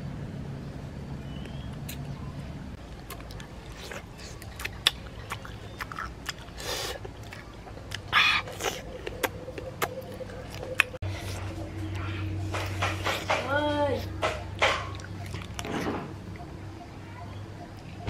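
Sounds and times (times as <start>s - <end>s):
low background rumble: 0.0s - 18.0s
chewing and lip-smacking: 2.8s - 13.4s, 14.2s - 16.5s
hissing breaths: 6.6s - 7.1s.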